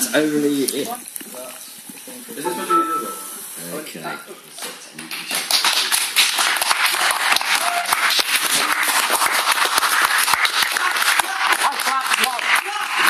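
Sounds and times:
people clapping: 0:04.6 - 0:13.0.

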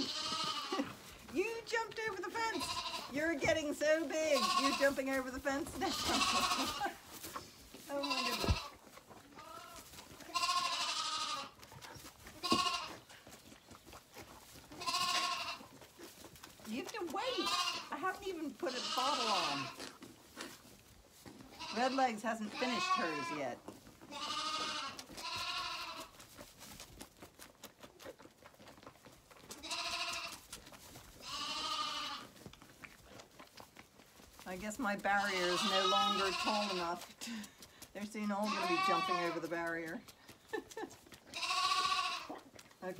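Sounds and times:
lambs bleating: 0:00.0 - 0:01.0, 0:01.8 - 0:07.0, 0:07.8 - 0:11.6, 0:12.4 - 0:13.1, 0:14.7 - 0:15.8, 0:16.9 - 0:20.5, 0:21.5 - 0:26.2, 0:29.5 - 0:30.4, 0:31.2 - 0:32.4, 0:34.8 - 0:37.1, 0:38.2 - 0:39.8, 0:41.3 - 0:42.5
lambs suckling at bottles: 0:00.0 - 0:42.9.

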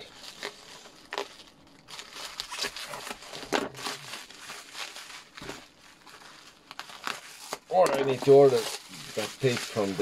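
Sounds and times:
bubble wrap crinkling: 0:00.0 - 0:10.0
knife cutting packing tape: 0:02.3 - 0:04.1.

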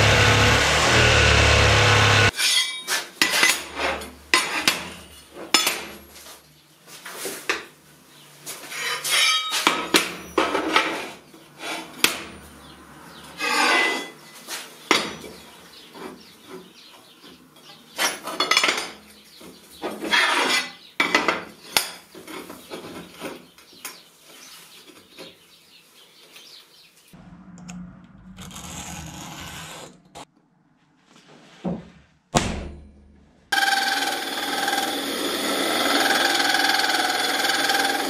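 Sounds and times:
steel plates clattering and scraping: 0:08.7 - 0:11.2.

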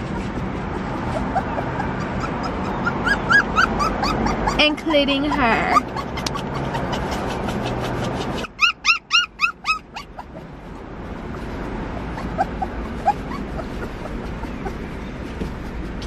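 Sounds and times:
puppy whimpering: 0:00.0 - 0:10.5, 0:12.0 - 0:15.1
puppy whining yips: 0:01.1 - 0:04.7, 0:05.3 - 0:10.4, 0:12.1 - 0:15.0.

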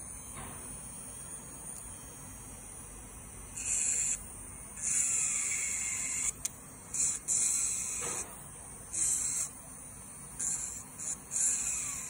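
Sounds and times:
nail drill grinding: 0:03.6 - 0:09.7, 0:10.3 - 0:12.0.

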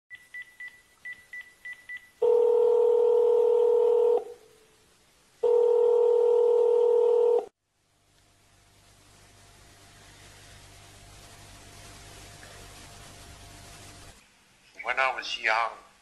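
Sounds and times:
faint line hiss with hum: 0:00.2 - 0:16.0
phone ringing tones: 0:02.2 - 0:04.3, 0:05.4 - 0:07.5.

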